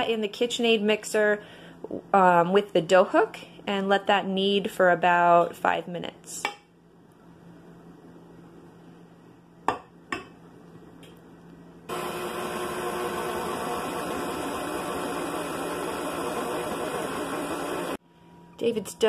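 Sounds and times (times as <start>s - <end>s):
stand mixer motor running: 11.9s - 18.0s.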